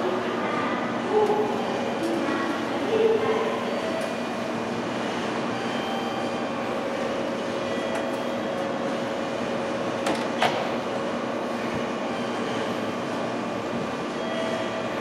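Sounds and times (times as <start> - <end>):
electric train humming: 0.0 - 15.0.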